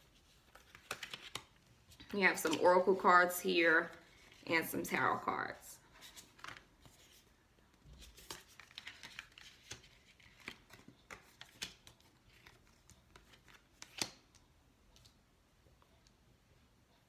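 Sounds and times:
cards clicking and snapping: 0.5s - 2.6s, 6.1s - 7.0s, 8.0s - 14.4s.

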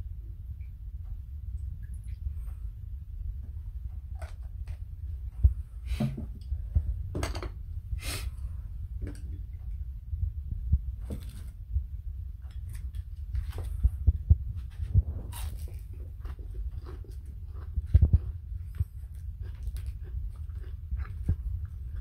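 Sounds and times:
low steady hum: 0.0s - 22.0s
tableware knocking on wooden table: 7.1s - 7.6s.

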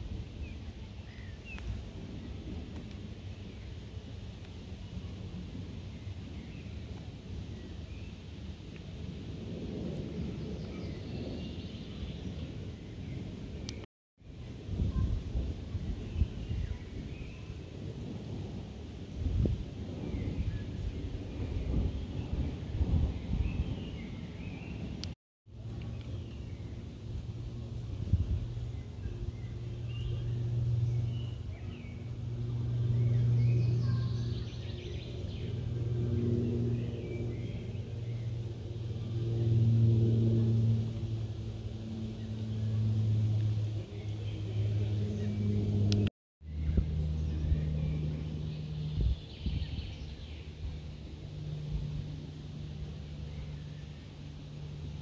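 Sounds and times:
low rumble: 9.3s - 55.0s
low motor hum: 25.5s - 55.0s
small birds chirping: 28.3s - 32.2s.

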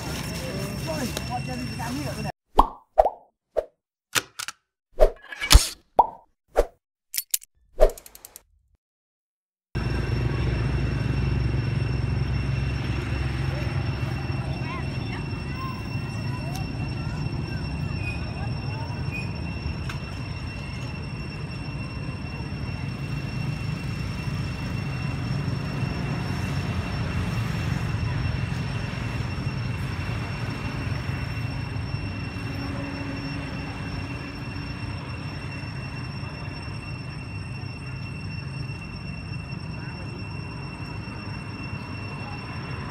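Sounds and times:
high-pitched tone: 9.8s - 42.9s.

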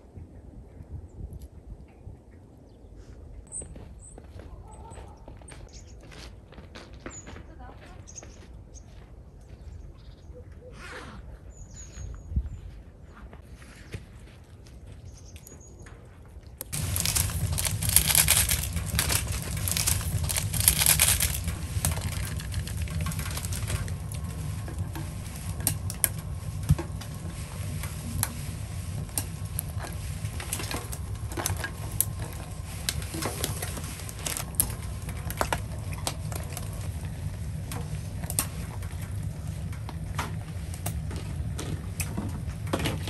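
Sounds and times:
low rumble: 16.6s - 43.0s
rustling hiss of packet emptied: 16.7s - 36.9s.

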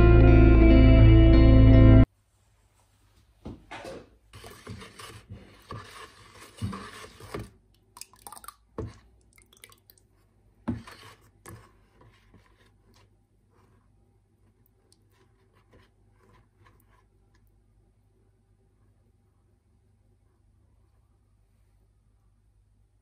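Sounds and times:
liquid sloshing in a bucket: 6.4s - 10.2s.

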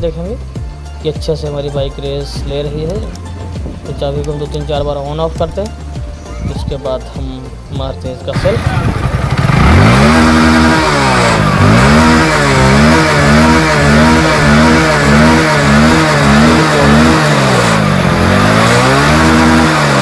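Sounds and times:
electric starter cranking: 8.3s - 20.0s
motorcycle engine revving: 8.3s - 20.0s.

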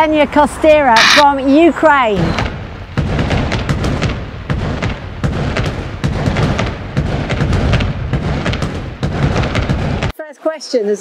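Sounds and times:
fireworks booming: 2.3s - 10.1s
fireworks crackling: 2.4s - 10.1s.

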